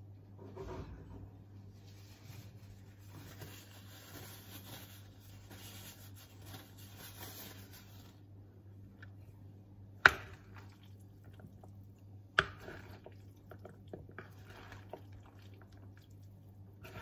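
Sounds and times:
paper towel rustling: 1.7 - 8.3.

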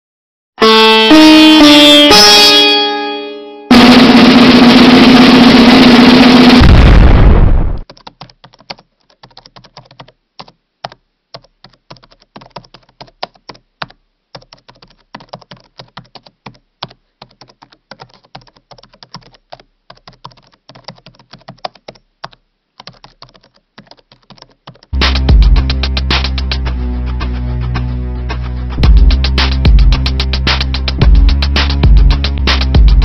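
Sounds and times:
keyboard typing: 7.8 - 25.0.

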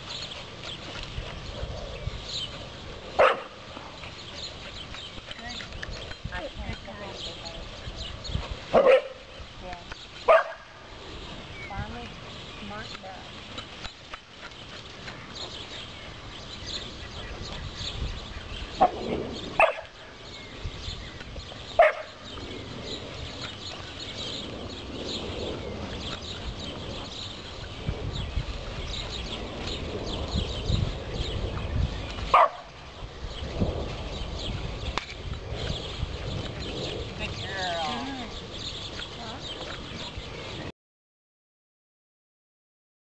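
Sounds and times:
dog barking: 3.2 - 3.6, 8.7 - 9.2, 10.3 - 10.6, 19.6 - 19.9, 21.8 - 22.1, 32.3 - 32.7.

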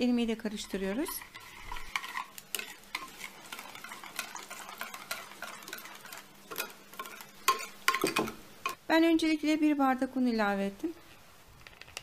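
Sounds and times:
wire whisk scraping glass dish: 0.6 - 8.0.

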